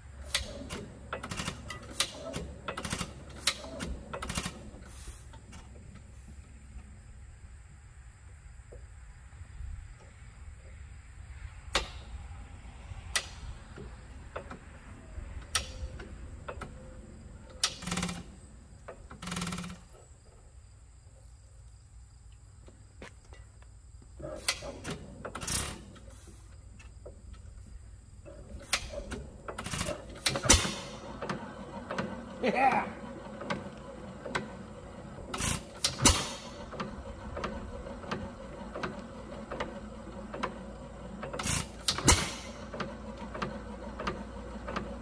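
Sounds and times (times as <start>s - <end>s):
sharp metal clicks: 0.2s - 4.7s, 13.1s - 14.6s, 15.4s - 20.0s, 24.4s - 26.1s, 28.3s - 32.3s, 35.3s - 39.7s, 41.2s - 44.9s
metal rattling bursts: 0.2s - 5.8s, 15.5s - 20.0s, 28.2s - 45.0s.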